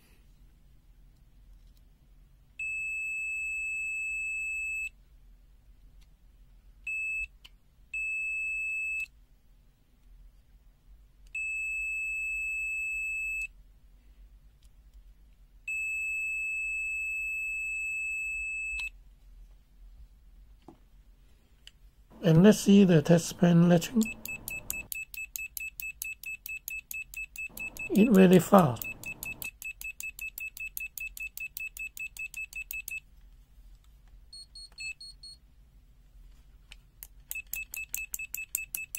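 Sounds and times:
multimeter continuity beeps: 0:22.2 - 0:33.0, 0:37.3 - 0:38.9.

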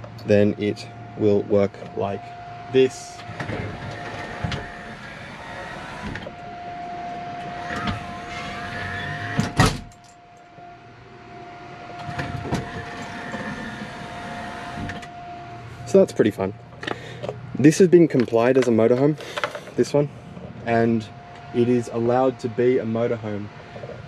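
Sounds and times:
powered sliding door whine: 0:02.7 - 0:16.0
door heavy thump: 0:09.4 - 0:09.9.

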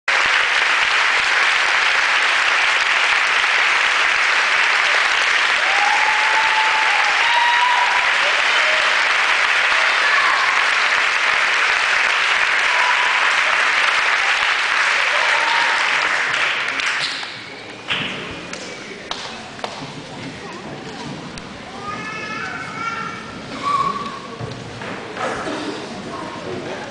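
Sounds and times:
audience applauding: 0:00.1 - 0:19.7.

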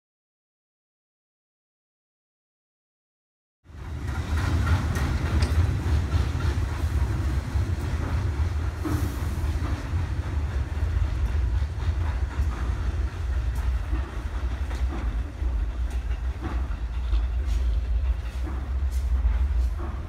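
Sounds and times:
subway train rumbling: 0:03.6 - 0:20.0
wheels clicking over rail joints: 0:03.8 - 0:09.0, 0:09.6 - 0:20.0.

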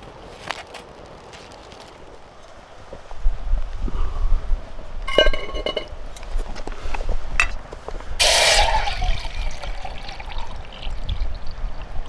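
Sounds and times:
steel pot clinking on stove: 0:05.1 - 0:05.9
water pouring into pot: 0:08.2 - 0:12.0.

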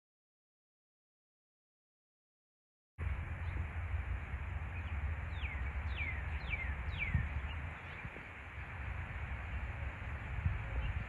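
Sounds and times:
low outdoor rumble: 0:03.0 - 0:11.0.

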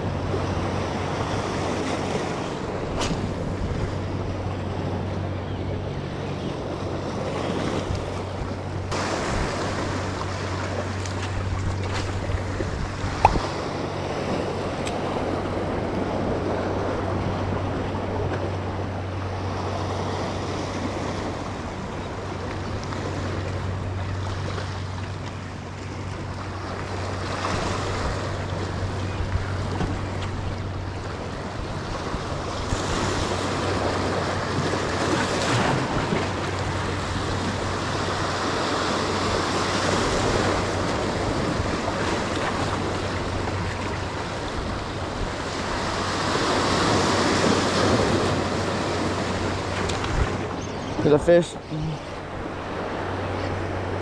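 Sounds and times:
wind on microphone: 0:00.0 - 0:18.8
waves breaking over rocks: 0:06.7 - 0:18.8, 0:19.5 - 0:54.0.

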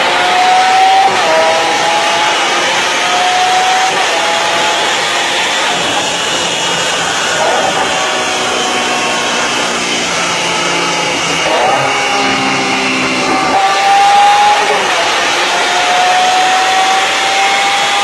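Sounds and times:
car engine revving hard: 0:00.0 - 0:18.0.

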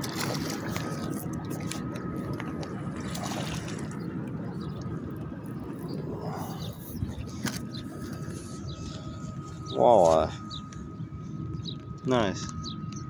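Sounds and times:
water lapping against seawall: 0:00.0 - 0:08.1
steady low noise: 0:00.0 - 0:13.0.

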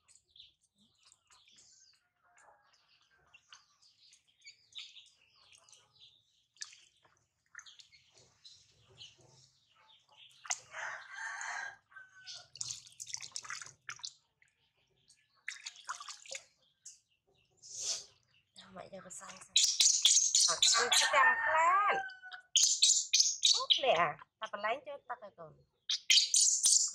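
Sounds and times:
water splashing in plastic basin: 0:06.6 - 0:08.1, 0:12.5 - 0:14.2, 0:15.4 - 0:16.6.

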